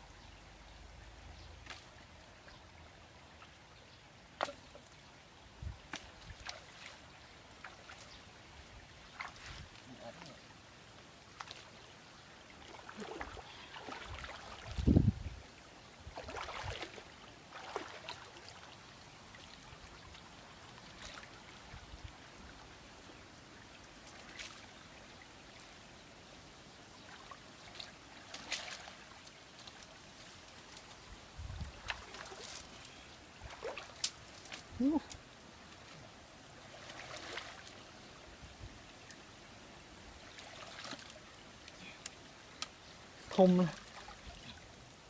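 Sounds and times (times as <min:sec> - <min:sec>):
shallow water splashing: 0:09.0 - 0:09.8, 0:12.5 - 0:15.0, 0:16.0 - 0:21.7, 0:26.9 - 0:30.5, 0:33.4 - 0:35.0, 0:35.8 - 0:38.0, 0:40.2 - 0:42.1.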